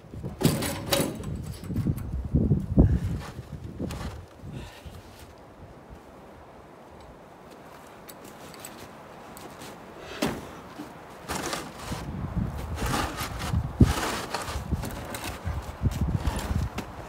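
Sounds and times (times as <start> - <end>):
heavy thump: 10.2 - 10.6
metal groomer scraping through snow: 11.2 - 15.6.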